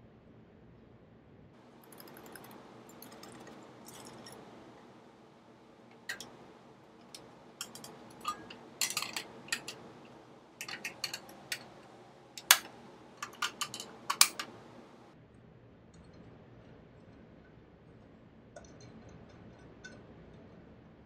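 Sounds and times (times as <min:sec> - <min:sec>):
waffle maker plates clicking: 0:01.8 - 0:04.9, 0:05.9 - 0:15.1.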